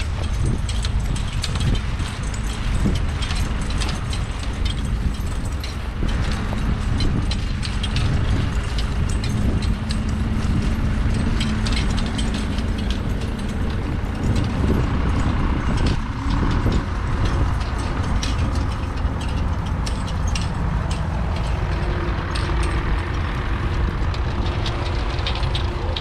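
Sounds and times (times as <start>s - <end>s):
harness chains and plough clinking: 0.0s - 26.0s
low rumble: 0.0s - 26.0s
vehicle engine running: 0.0s - 26.0s.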